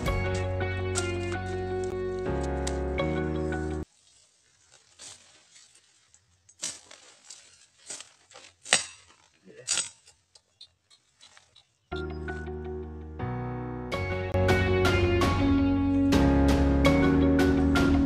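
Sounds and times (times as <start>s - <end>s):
leafy undergrowth rustling: 0.0s - 11.9s.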